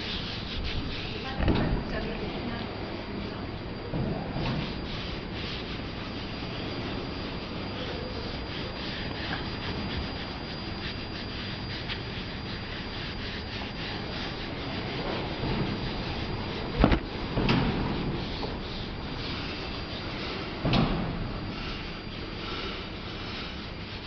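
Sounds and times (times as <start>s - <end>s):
pad scrubbing painted panel: 0.0s - 2.6s, 4.4s - 24.0s.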